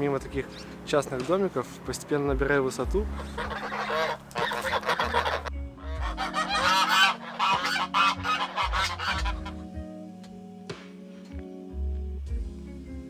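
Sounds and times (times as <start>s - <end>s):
geese honking: 3.0s - 9.8s.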